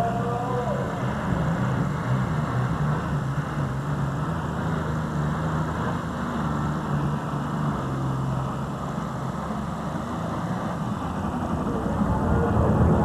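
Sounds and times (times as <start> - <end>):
rushing noise: 0.0 - 13.0
tractor engine drone: 0.0 - 13.0.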